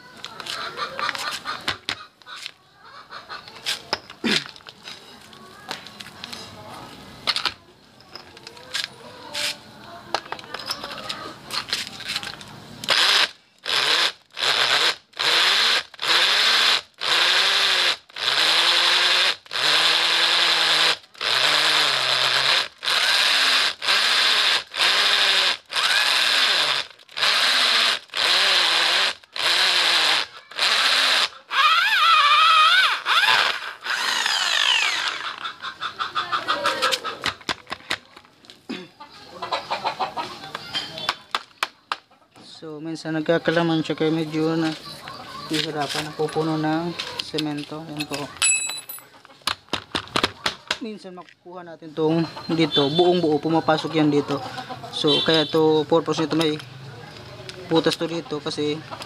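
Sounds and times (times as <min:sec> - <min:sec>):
clicks and rattles of drill bit: 0:10.1 - 0:35.6
drill cutting into concrete: 0:12.9 - 0:35.4.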